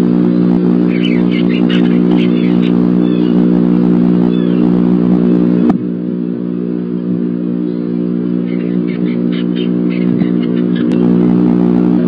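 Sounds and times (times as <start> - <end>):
steady low hum: 0.0 - 12.0
faint bird chirps: 0.8 - 3.5, 4.2 - 4.8, 7.7 - 11.1.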